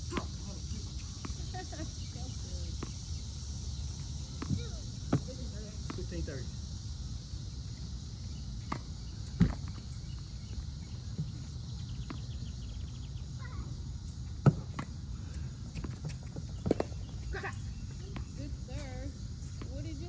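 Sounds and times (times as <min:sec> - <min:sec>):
tennis balls struck and bouncing: 0:15.7 - 0:17.2.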